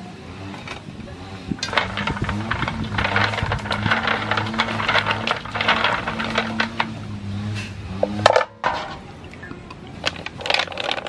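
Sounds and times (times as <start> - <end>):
clam shells clinking in basin: 1.6 - 7.2, 8.0 - 11.0
water sloshing: 1.6 - 7.2.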